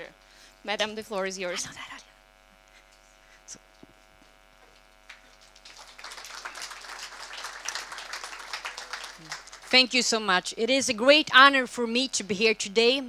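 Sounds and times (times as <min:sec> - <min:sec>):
electrical mains hum: 0:00.0 - 0:13.0
audience applause: 0:05.1 - 0:09.9.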